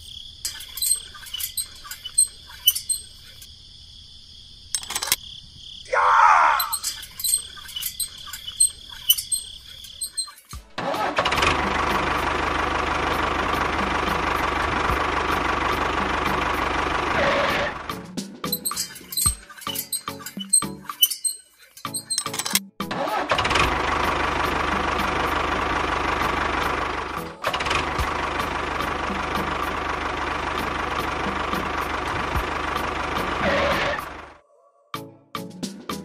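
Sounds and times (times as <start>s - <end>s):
tractor engine running: 0.0s - 3.5s, 4.6s - 5.2s, 6.6s - 34.4s
short falling squeal: 0.5s - 3.2s, 6.3s - 10.6s.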